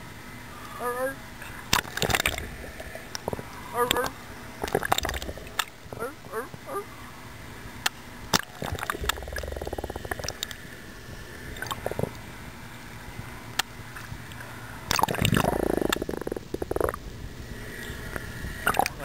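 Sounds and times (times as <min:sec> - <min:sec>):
seawater sloshing and gurgling: 0:01.4 - 0:06.5, 0:08.3 - 0:12.2, 0:14.0 - 0:17.0
water bubbling: 0:01.4 - 0:06.8, 0:08.3 - 0:12.3, 0:14.0 - 0:19.0.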